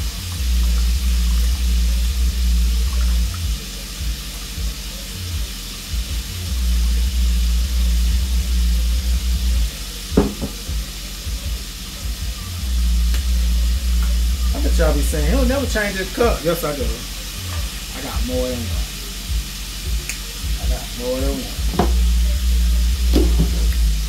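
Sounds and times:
low rumble: 0.0 - 20.8.

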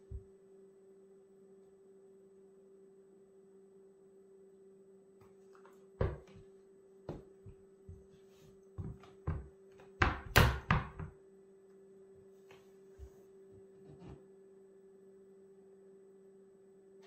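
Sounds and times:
boot footsteps on wooden floor: 6.0 - 6.4, 8.8 - 9.5.

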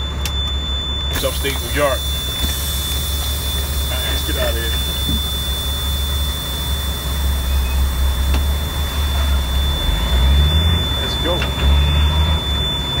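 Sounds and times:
diesel truck engine running: 0.0 - 13.0.

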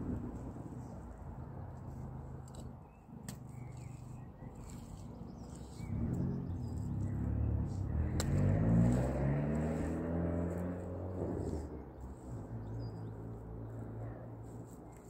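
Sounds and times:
vehicle engine running: 3.5 - 15.0.

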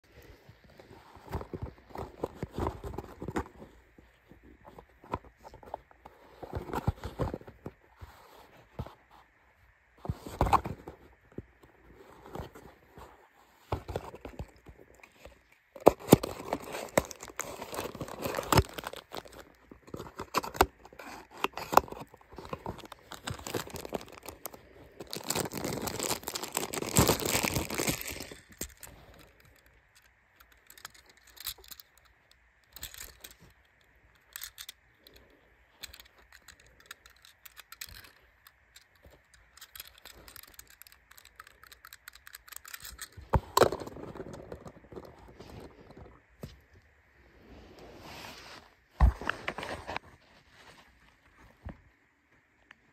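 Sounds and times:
plastic crinkling and tearing: 13.7 - 29.7.

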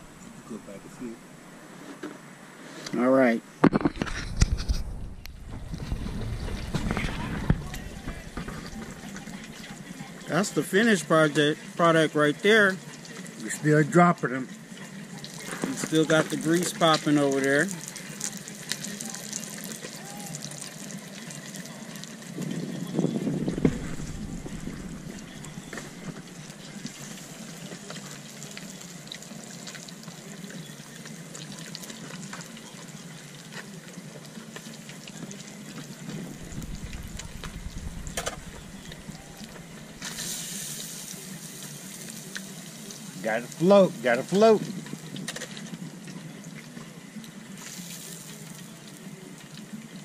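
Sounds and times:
bump: 3.6 - 9.4
grease popping: 3.6 - 11.1, 14.9 - 50.0
fish sizzling in oil: 5.4 - 50.0.

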